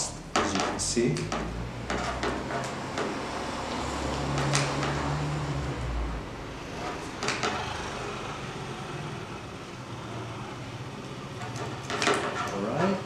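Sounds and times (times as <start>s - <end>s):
wooden pieces scraping: 0.4s - 5.2s, 11.4s - 13.0s.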